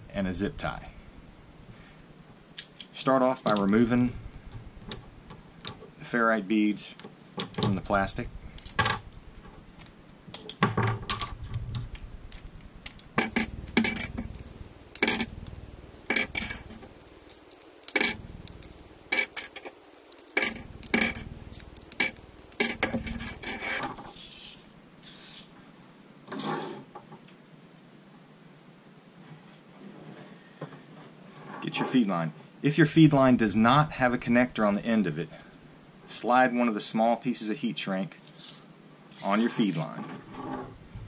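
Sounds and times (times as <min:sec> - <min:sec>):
rustle: 0:00.4 - 0:41.0
plastic packaging clicking: 0:11.2 - 0:23.9
beads clacking on workbench: 0:12.9 - 0:24.1.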